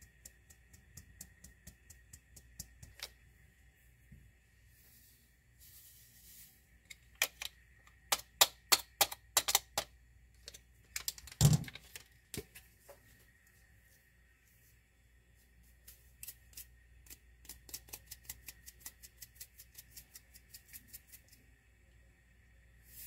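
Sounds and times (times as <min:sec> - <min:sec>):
soft hiss: 0:00.0 - 0:07.9, 0:12.4 - 0:23.0.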